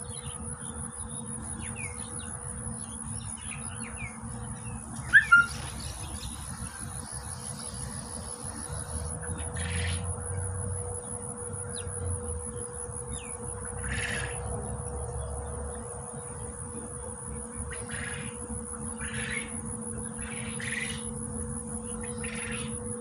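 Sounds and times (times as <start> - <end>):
high insect drone: 0.0 - 23.0
bird calls: 1.6 - 10.1.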